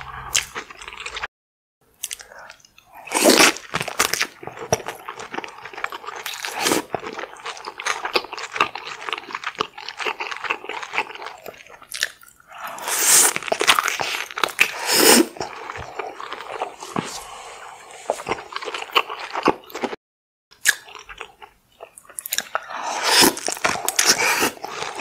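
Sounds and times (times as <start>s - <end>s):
wet chewing and mouth sounds: 0.0s - 1.3s, 1.9s - 25.0s
loud bites and slurps: 9.8s - 20.0s, 22.2s - 25.0s.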